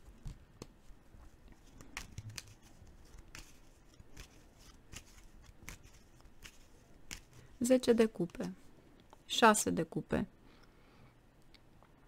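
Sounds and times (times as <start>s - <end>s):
cards being shuffled: 0.0s - 8.6s.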